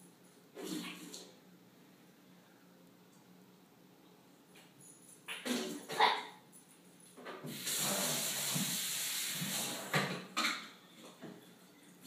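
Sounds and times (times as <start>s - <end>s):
steady hiss: 7.3s - 10.1s.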